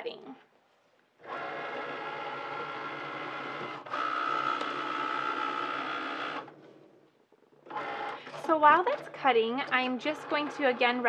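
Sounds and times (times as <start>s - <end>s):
cutting machine motor whirring: 1.2s - 6.6s, 7.6s - 11.0s.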